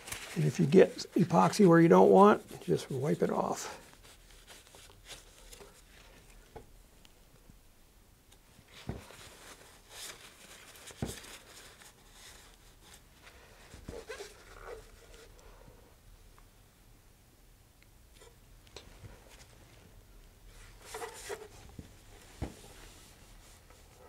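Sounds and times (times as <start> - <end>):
paper towel rustling: 0.0 - 6.5, 8.6 - 15.4, 20.5 - 24.0.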